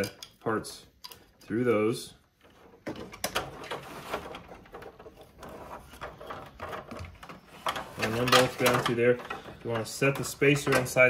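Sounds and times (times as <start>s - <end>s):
plastic parts rustling and clicking: 2.3s - 11.0s
cables being pulled: 3.5s - 11.0s.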